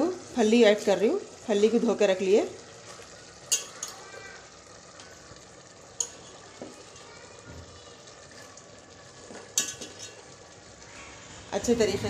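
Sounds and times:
gravy bubbling: 1.1s - 11.6s
pot clatter: 2.8s - 4.1s, 6.0s - 7.1s, 9.2s - 10.4s.

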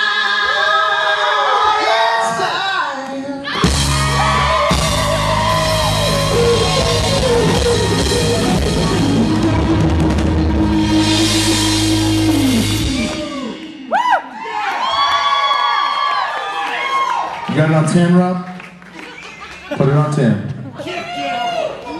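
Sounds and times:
crowd cheering and whooping: 0.0s - 2.8s, 3.4s - 17.5s
electric guitar: 3.5s - 13.9s
live rock band: 3.5s - 14.0s
drum kit: 3.5s - 14.2s.

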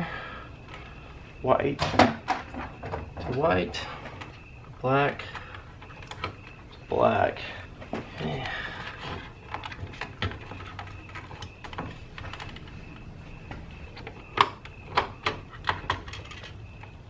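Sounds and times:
plastic clicks and knocks: 1.8s - 4.3s, 5.3s - 6.9s, 7.8s - 12.8s, 13.4s - 16.9s.

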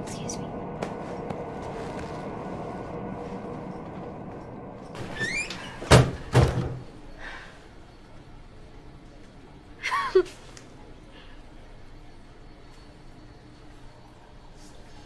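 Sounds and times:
low room murmur: 0.0s - 15.0s
door banging shut: 5.0s - 6.8s
door squeak: 5.0s - 6.8s.

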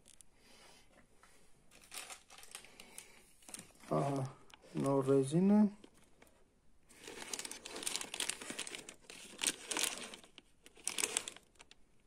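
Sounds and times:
plastic bag crinkling: 1.7s - 6.3s, 6.9s - 11.8s.

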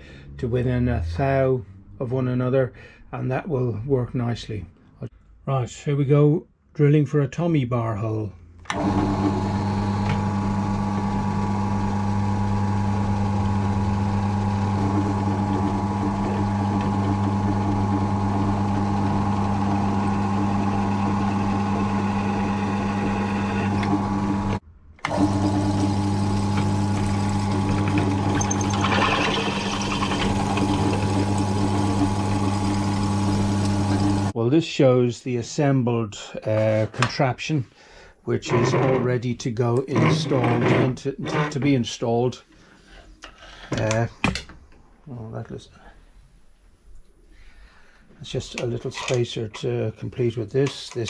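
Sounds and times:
drill press motor hum: 8.7s - 34.3s
drill bit cutting metal: 12.7s - 34.3s.

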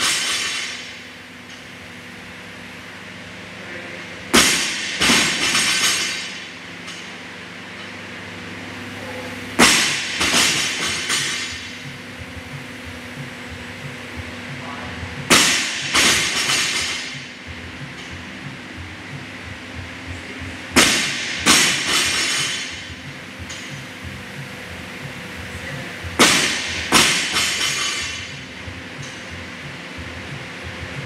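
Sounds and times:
barbell dropped on rubber floor: 0.0s - 1.0s, 4.3s - 7.1s, 9.6s - 11.9s, 15.3s - 17.3s, 20.8s - 23.8s, 26.2s - 28.4s
steady low hum: 0.0s - 31.0s.

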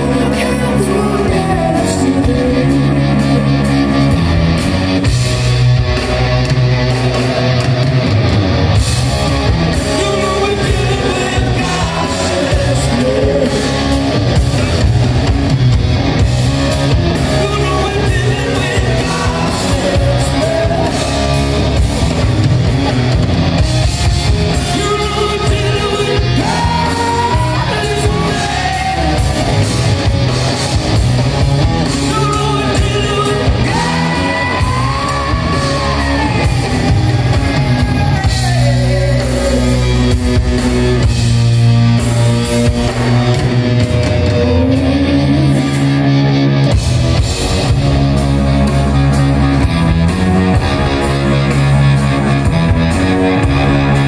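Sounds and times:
man singing: 0.0s - 3.7s, 9.7s - 14.8s, 17.0s - 21.5s, 24.5s - 29.7s, 31.9s - 40.6s, 43.8s - 45.9s
rock band playing live: 0.0s - 54.0s.

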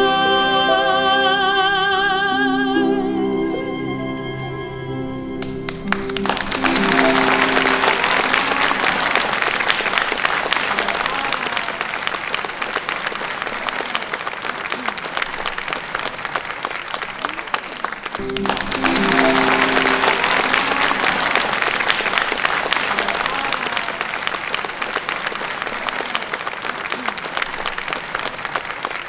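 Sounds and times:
held musical chord: 2.6s - 9.5s, 18.2s - 23.2s
audience applauding: 5.4s - 29.0s.

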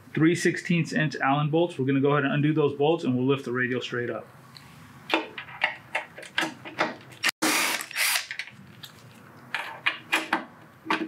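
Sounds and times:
cordless drill running: 7.4s - 8.2s.

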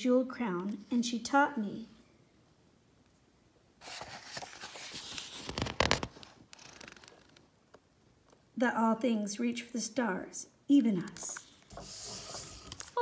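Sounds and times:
book pages turning: 3.8s - 7.4s, 11.4s - 13.0s.

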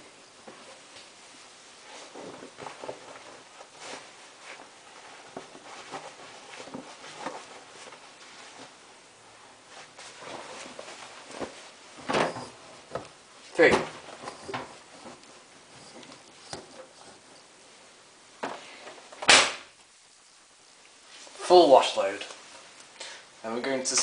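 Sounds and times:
laundry rustling and knocks: 0.4s - 17.6s.

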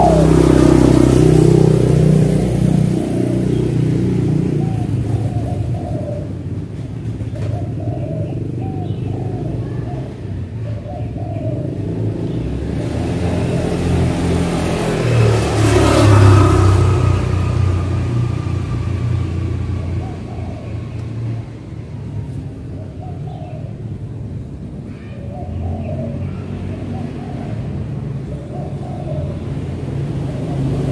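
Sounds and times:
car passing: 0.0s - 7.3s, 11.6s - 22.7s, 25.8s - 30.9s.

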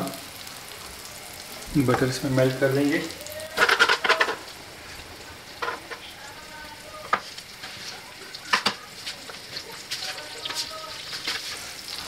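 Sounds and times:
butter sizzling in frying pan: 0.0s - 12.0s.

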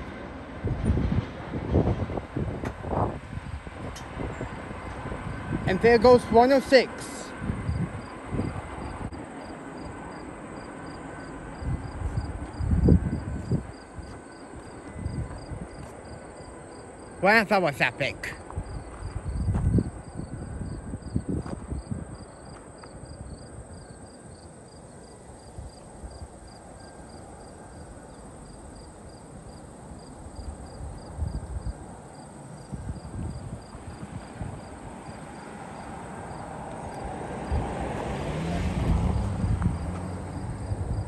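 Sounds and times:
wind rumbling on microphone: 0.0s - 6.4s, 7.3s - 10.2s, 11.0s - 16.3s, 18.4s - 24.5s, 29.3s - 41.0s
broad rushing noise: 0.0s - 16.0s, 16.8s - 20.6s
crickets chirping: 2.4s - 41.0s.

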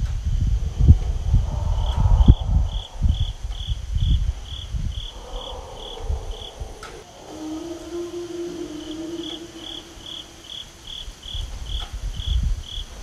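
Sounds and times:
low rumble with thumps: 0.0s - 7.1s
insect chirping: 0.0s - 13.0s.

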